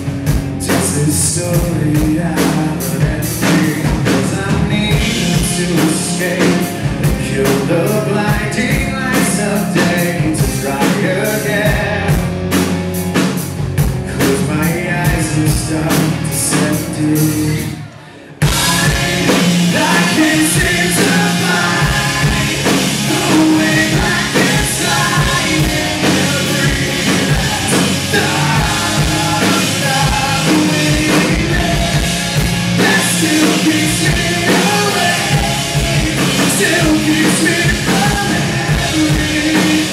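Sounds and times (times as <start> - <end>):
man singing: 0.0 - 12.6, 14.0 - 39.9
live rock band playing: 0.0 - 39.9.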